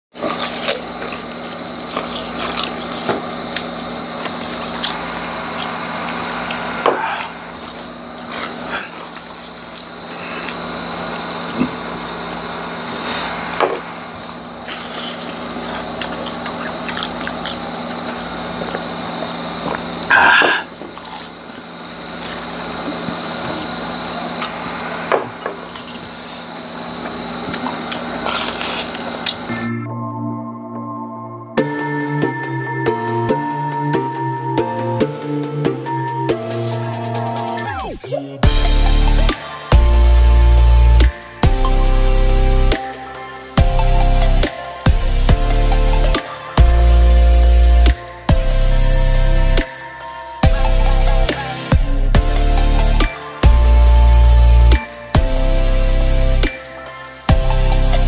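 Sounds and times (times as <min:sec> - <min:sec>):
crunching and chewing crispy food: 0:00.2 - 0:12.4, 0:14.7 - 0:24.5, 0:25.6 - 0:29.5
steady low hum: 0:00.2 - 0:29.8, 0:34.6 - 0:58.0.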